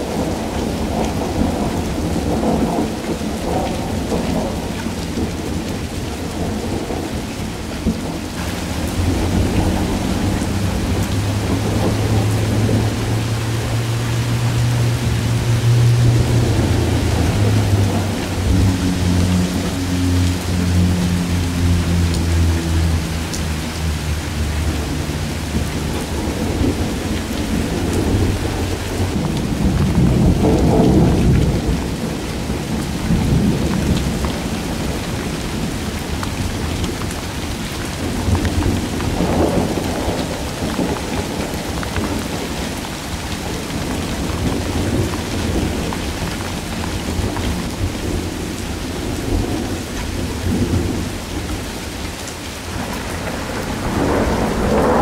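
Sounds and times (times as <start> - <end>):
rain pattering on puddles: 0.0 - 55.0
thunder rumbling: 0.0 - 55.0.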